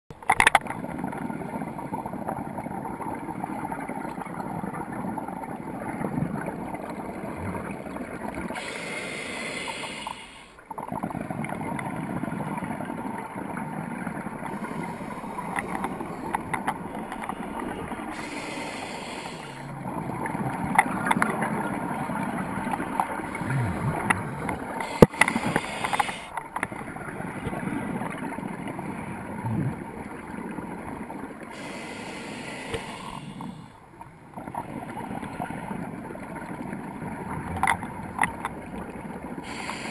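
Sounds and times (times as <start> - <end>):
muffled underwater rush: 0.6 - 39.9
hissing regulator exhaust bubbles: 1.1 - 39.9
small clicks: 15.3 - 17.7.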